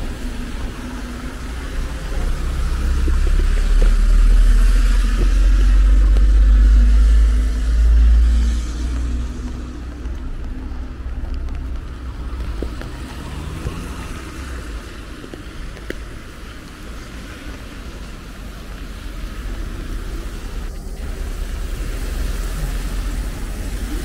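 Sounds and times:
traffic on wet streets: 0.0 - 24.0.

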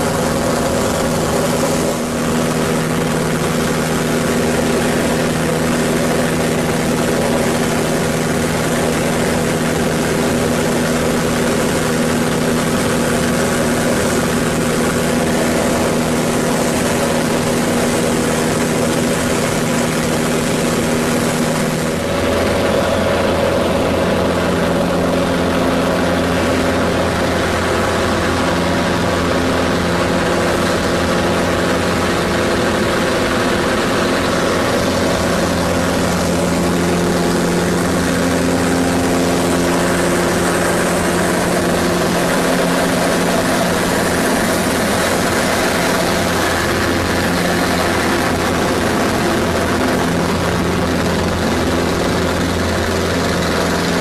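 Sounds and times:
propeller plane engine running: 0.0 - 54.0
wind rush: 0.0 - 54.0.

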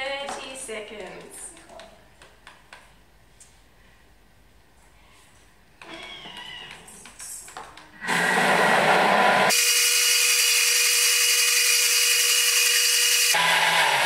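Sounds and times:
blender motor whirring and chopping: 8.0 - 14.0.

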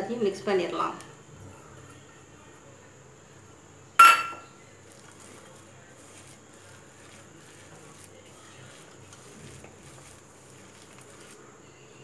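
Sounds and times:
batter worked by hand: 1.0 - 12.0
utensil striking steel bowl: 4.0 - 4.5.

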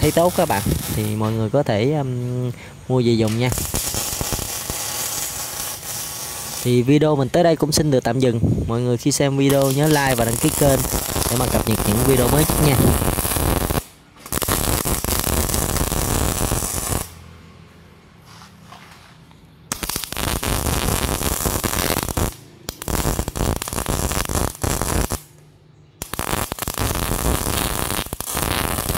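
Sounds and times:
welding arc crackling: 0.0 - 1.6, 3.0 - 7.1, 9.4 - 17.2, 19.7 - 25.4, 26.0 - 28.9.

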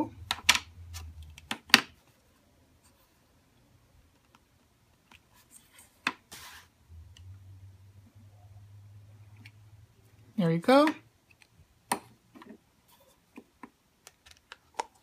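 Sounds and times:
low steady hum: 0.0 - 15.0
soft rub: 5.3 - 6.8.

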